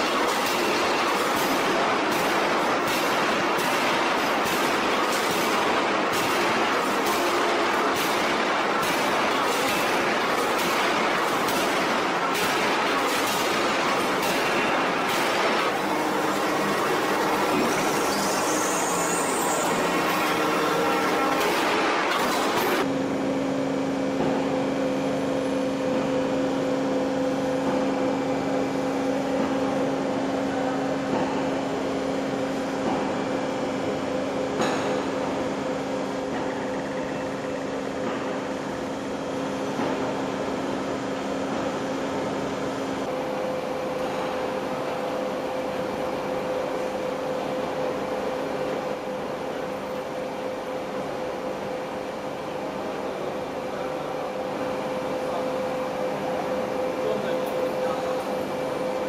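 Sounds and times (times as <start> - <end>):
lathe machine hum: 14.6 - 23.0.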